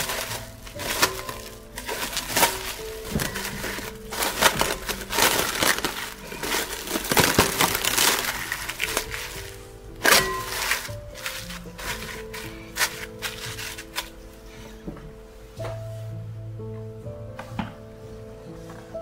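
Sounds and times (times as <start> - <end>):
cling film crackling: 0.0 - 14.2
soft background music: 0.0 - 19.0.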